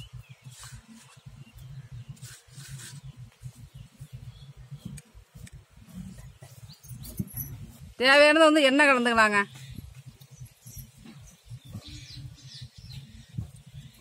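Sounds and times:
wind buffeting microphone: 0.0 - 14.0
fingers rustling on metal plate: 0.4 - 3.3.

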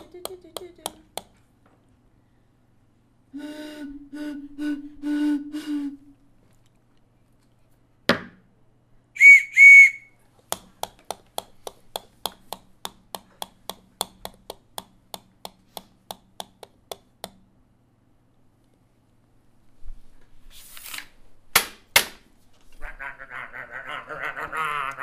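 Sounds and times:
high-pitched whistle toots: 9.2 - 10.2.

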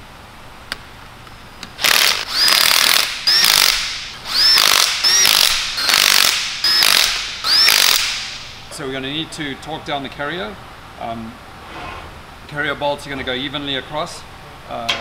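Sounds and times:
impact wrench hammering: 1.8 - 8.5.

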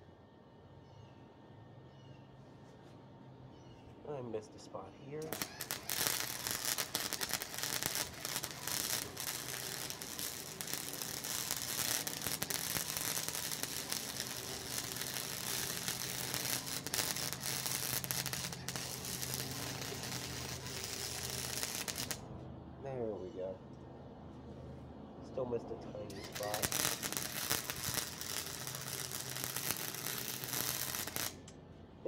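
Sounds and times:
low hum: 2.9 - 32.0
welder arc crackling: 5.2 - 22.3, 26.1 - 31.6.

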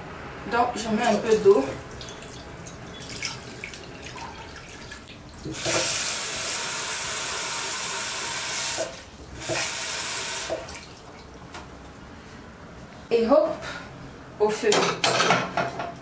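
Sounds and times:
tap water running into a pot: 2.0 - 10.9.

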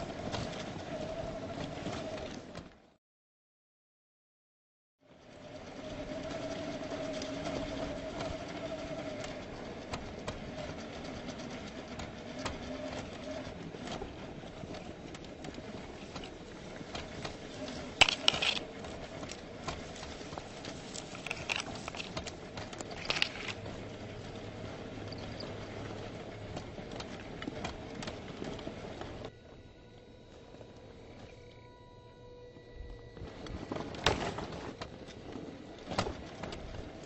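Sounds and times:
tyres crunching on stones: 15.5 - 23.7.

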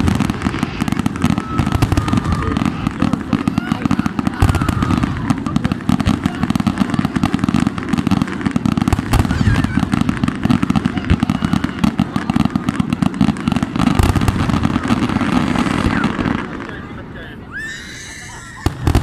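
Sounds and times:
fireworks bursting and crackling: 0.0 - 19.0.

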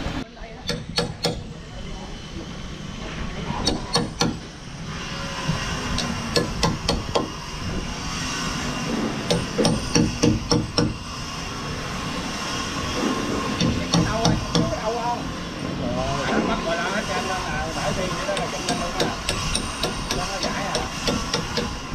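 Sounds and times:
hammer striking chisel into wood: 0.6 - 1.5, 3.6 - 4.5, 6.0 - 7.3, 9.3 - 11.0, 13.6 - 14.8, 18.3 - 21.8.

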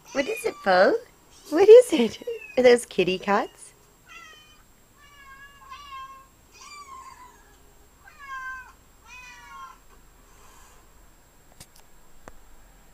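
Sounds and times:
kittens meowing through speakers: 0.1 - 1.0, 2.1 - 9.8.

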